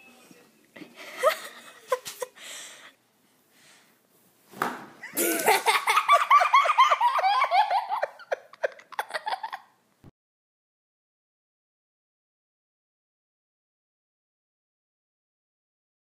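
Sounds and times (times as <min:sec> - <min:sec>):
person laughing hard: 0:05.0 - 0:09.8.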